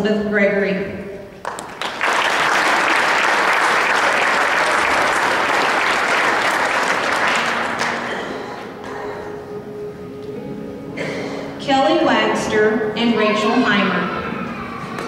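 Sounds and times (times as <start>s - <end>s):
audience applauding: 1.4s - 8.6s.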